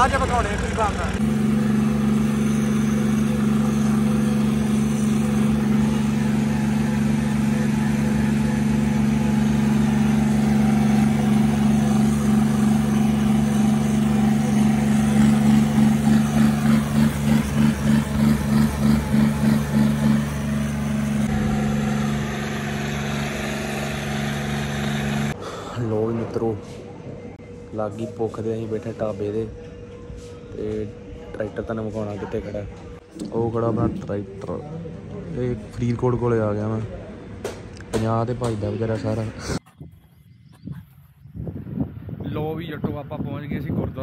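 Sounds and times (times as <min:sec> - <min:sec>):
tractor diesel engine running: 0:00.0 - 0:25.4.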